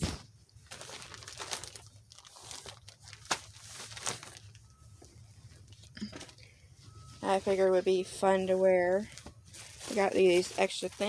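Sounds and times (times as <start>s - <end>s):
plastic bag crinkling: 0.5s - 4.8s, 7.2s - 11.0s.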